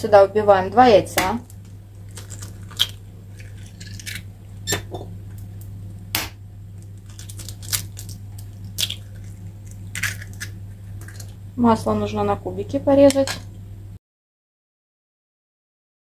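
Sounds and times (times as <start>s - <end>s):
low hum: 0.0s - 14.0s
eggshell cracking taps: 1.2s - 11.4s.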